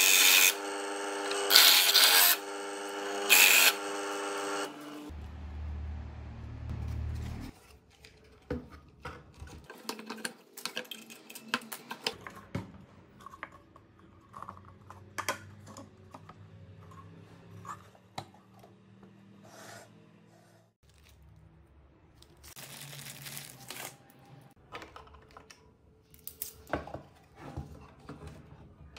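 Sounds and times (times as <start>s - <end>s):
motor humming: 0.0s - 7.4s.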